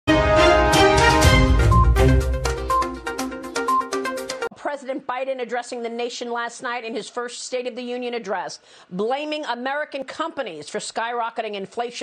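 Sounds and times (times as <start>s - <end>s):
electronic news theme music: 0.1s - 4.5s.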